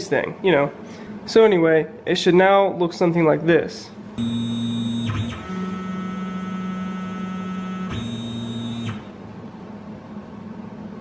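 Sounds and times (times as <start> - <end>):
stepper motor whining: 4.2 - 9.1.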